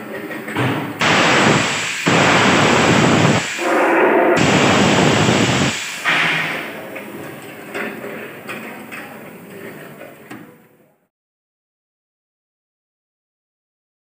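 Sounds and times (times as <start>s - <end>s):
compressed air hissing blasts: 1.0s - 6.8s.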